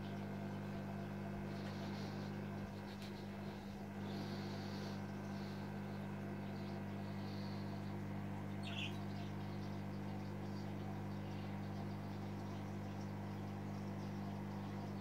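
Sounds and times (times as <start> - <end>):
aquarium equipment humming: 0.0 - 15.0.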